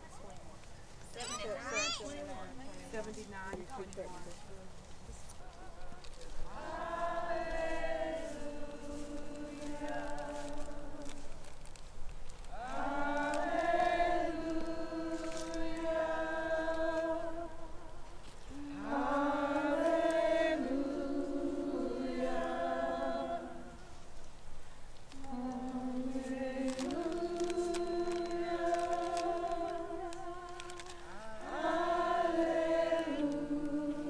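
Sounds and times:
group of voices singing: 0:05.4 - 0:11.4, 0:12.5 - 0:24.0, 0:25.1 - 0:34.0.

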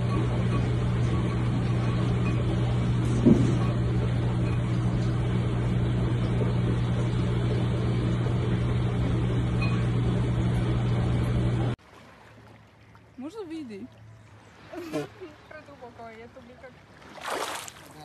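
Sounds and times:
mechanical hum with hiss: 0:00.0 - 0:11.8.

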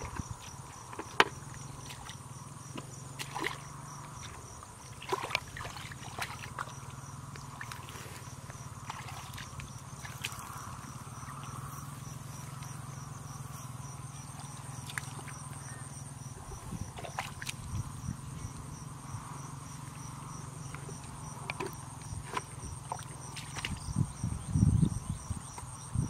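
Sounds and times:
insects chirping: 0:00.0 - 0:26.0
low steady hum: 0:00.0 - 0:26.0
hands squelching through mud: 0:05.0 - 0:11.6, 0:14.3 - 0:15.6.

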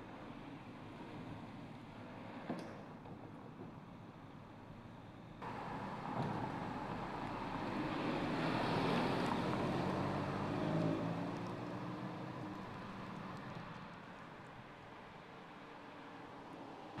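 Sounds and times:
car driving past: 0:05.4 - 0:13.8.

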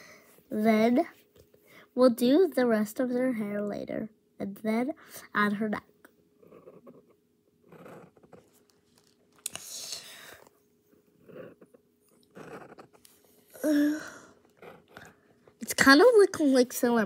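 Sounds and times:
soft breaths: 0:00.0 - 0:00.5, 0:01.4 - 0:02.0, 0:09.5 - 0:15.6.

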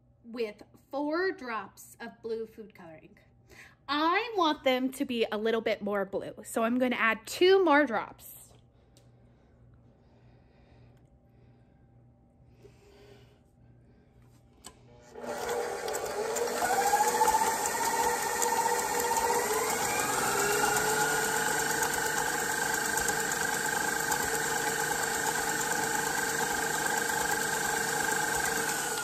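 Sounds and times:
stand mixer motor whine: 0:14.9 - 0:29.0.

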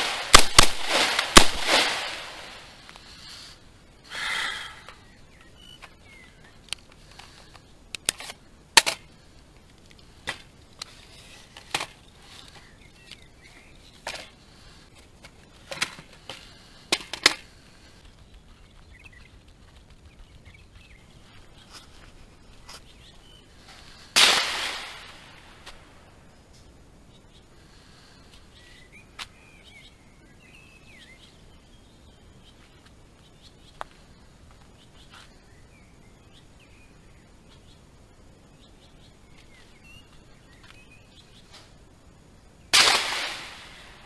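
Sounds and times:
gunshot echo: 0:00.0 - 0:02.7, 0:24.2 - 0:25.6, 0:42.7 - 0:44.0
rifle gunshots: 0:00.0 - 0:02.7, 0:24.2 - 0:25.3, 0:42.8 - 0:44.0.

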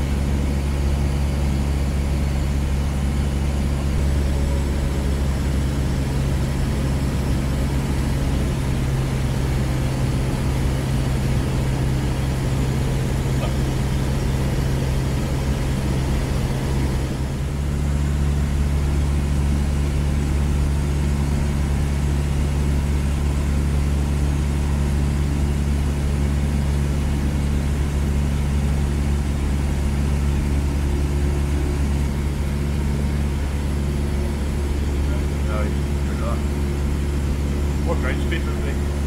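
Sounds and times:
small plane engine from cabin: 0:00.0 - 0:39.0.

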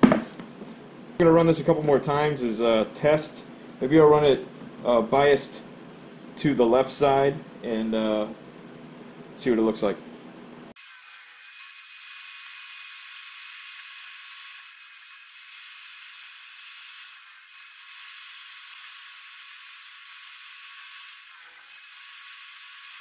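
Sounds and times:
table saw cutting hiss: 0:10.8 - 0:23.0.

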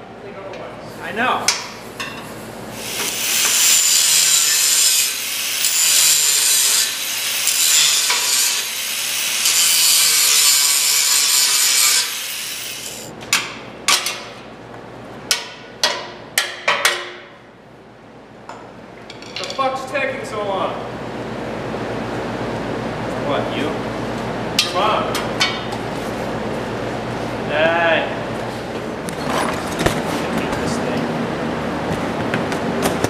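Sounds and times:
angle grinder cutting steel: 0:02.8 - 0:13.1.

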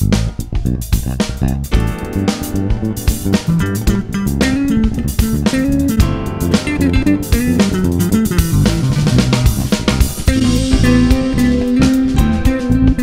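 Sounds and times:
drum kit: 0:00.0 - 0:13.0
electric bass groove: 0:00.0 - 0:13.0
keyboard: 0:01.6 - 0:13.0.

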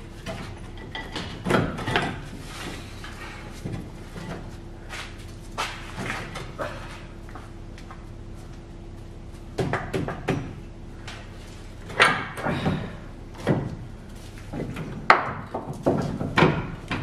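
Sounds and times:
metal knocks and clunks: 0:14.5 - 0:17.0.

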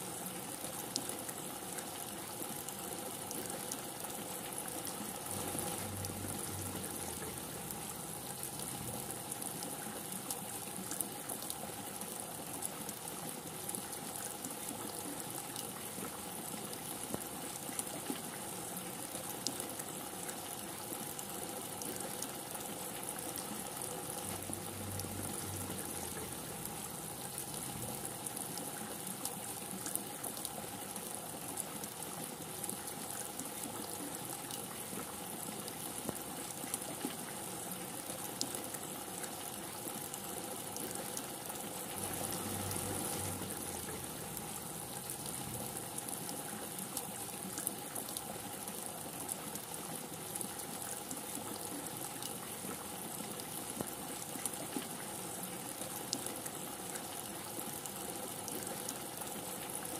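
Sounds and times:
heavy rain: 0:03.2 - 0:15.7, 0:20.5 - 0:33.1, 0:37.5 - 0:54.4.

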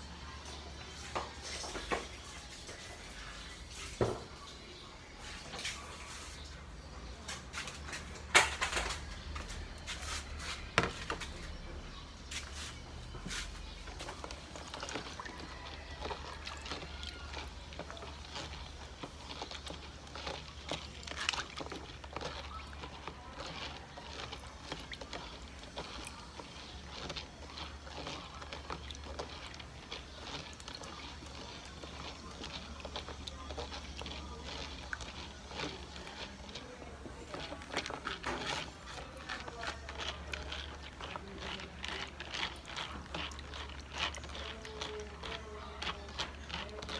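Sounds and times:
seeds stirred in water clicking: 0:12.2 - 0:46.9.

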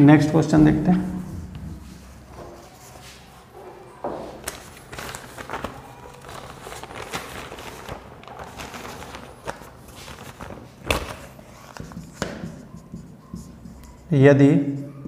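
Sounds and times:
eraser wiping whiteboard: 0:11.5 - 0:14.2.

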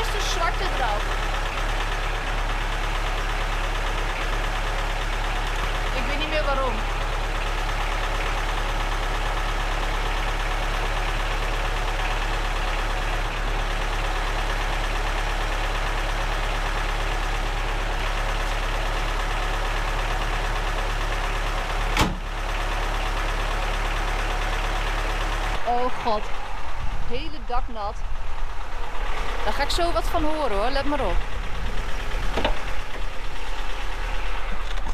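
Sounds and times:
car engine idling: 0:00.0 - 0:34.9
car bonnet slamming shut: 0:22.0 - 0:22.2.

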